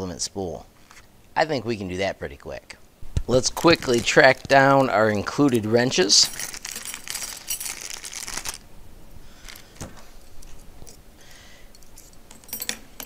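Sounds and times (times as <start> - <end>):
plastic bag crinkling: 3.3 - 8.7, 9.3 - 10.2.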